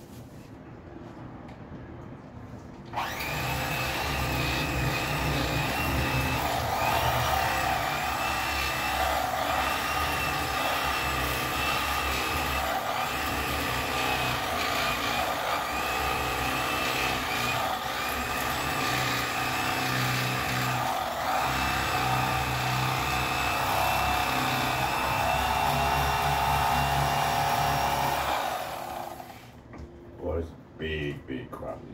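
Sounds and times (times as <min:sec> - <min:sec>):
electric fillet knife cutting fish: 0:03.0 - 0:10.9.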